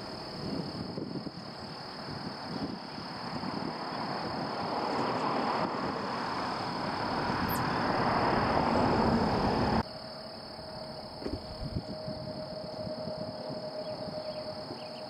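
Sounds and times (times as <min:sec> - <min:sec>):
faint steady whine: 0:09.7 - 0:15.0
steady high tone: 0:09.8 - 0:15.0.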